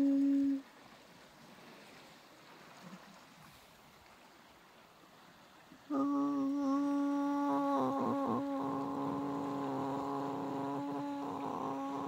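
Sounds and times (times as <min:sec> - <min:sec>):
long held tone with overtones: 0:00.0 - 0:00.6, 0:05.9 - 0:12.0.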